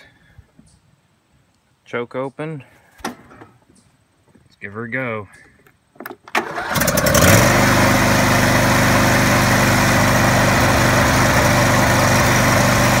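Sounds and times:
lawn mower engine starting: 6.0 - 13.0.

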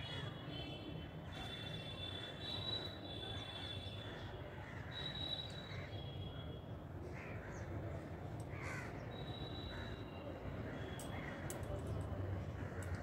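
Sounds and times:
crows cawing: 7.1 - 7.7, 8.5 - 9.1, 10.7 - 11.6, 12.5 - 13.0.

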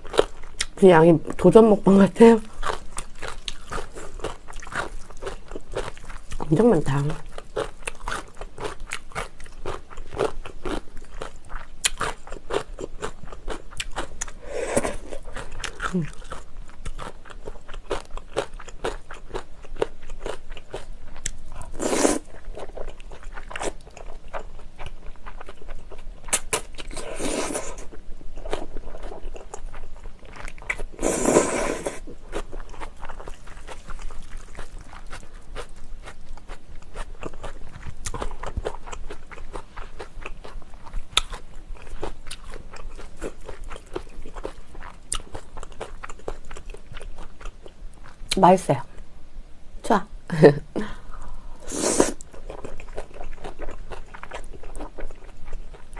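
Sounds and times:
noodle slurps: 31.0 - 32.0, 51.6 - 52.2
wet chewing with smacking: 52.0 - 55.9.

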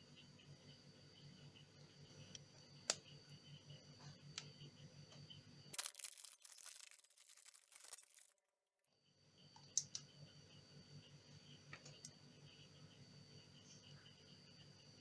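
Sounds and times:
snack wrapper crinkling and tearing: 5.7 - 8.4.

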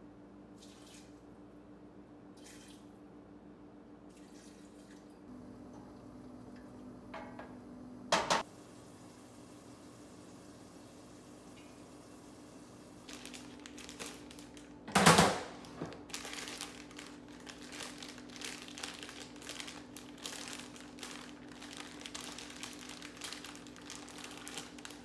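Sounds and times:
plastic bag crinkling: 13.0 - 25.0.

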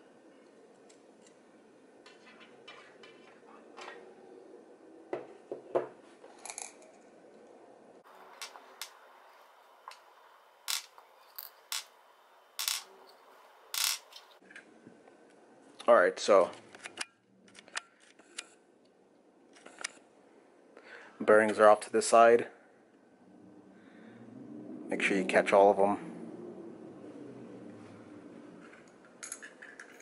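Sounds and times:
ball bearings clicking on wood: 10.7 - 11.9, 12.6 - 12.9, 13.8 - 14.2.

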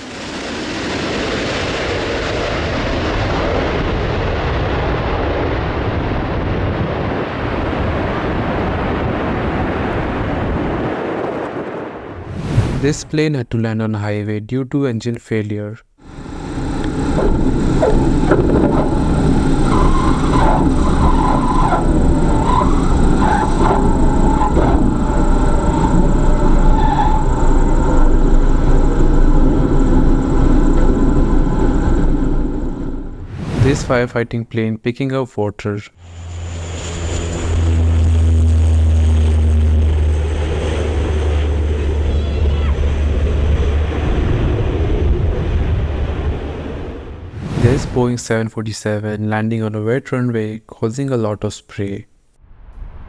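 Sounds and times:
propeller plane cabin rumble: 16.0 - 33.8, 36.0 - 48.0.

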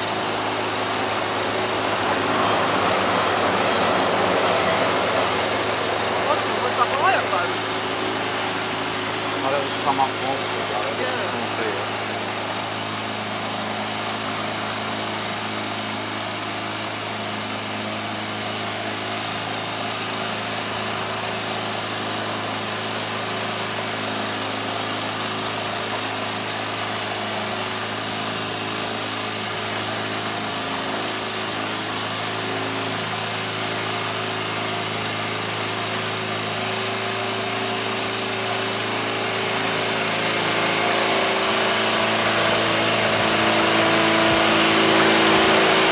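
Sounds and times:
boat engine humming: 0.0 - 45.9
bird chirping: 13.2 - 14.1, 21.9 - 22.6, 25.7 - 26.6, 32.2 - 33.0.

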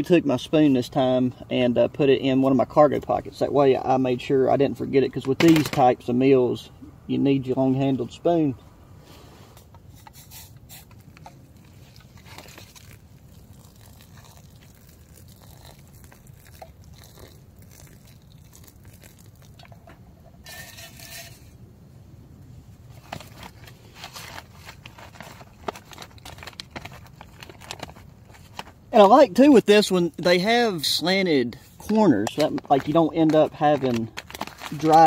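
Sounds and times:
foil pouch crinkling: 10.0 - 19.9, 22.9 - 29.2, 31.7 - 35.0
boiling water pouring into pouch: 11.0 - 19.8, 32.7 - 35.0.

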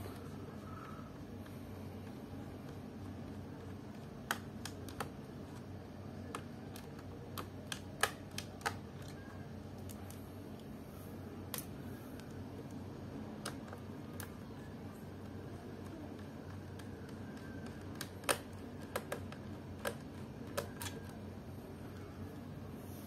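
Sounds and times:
screwdriver clicking on plastic: 15.8 - 21.2.

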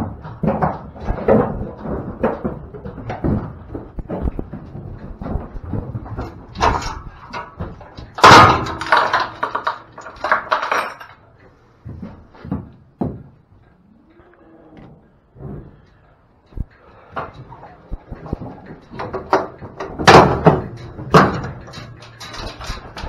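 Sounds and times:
chain and latch rattling: 6.0 - 11.4, 17.3 - 23.0
metal gate clanging shut: 6.5 - 11.2, 19.1 - 23.0.

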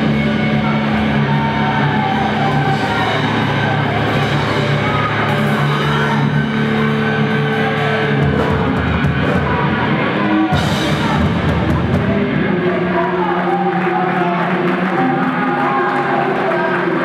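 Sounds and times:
drum kit: 0.0 - 13.3
bass guitar: 0.0 - 17.0
electric guitars: 0.0 - 17.0.

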